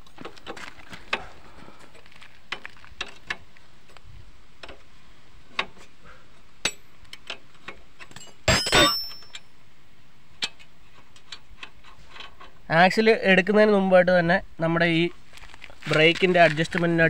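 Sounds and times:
metallic clatter with ring: 8.0 - 9.5.

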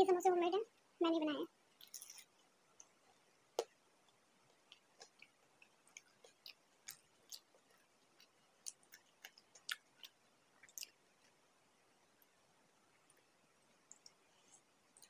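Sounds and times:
close-up chewing: 4.4 - 11.4.

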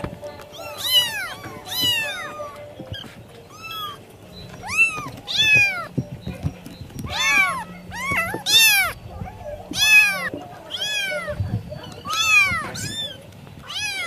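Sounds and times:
cat meowing: 0.5 - 4.0, 4.6 - 5.9, 7.1 - 11.4, 12.0 - 14.0.

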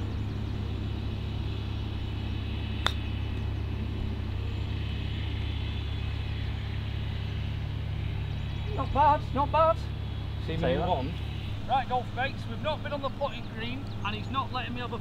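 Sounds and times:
golf club striking ball: 2.8 - 3.5.

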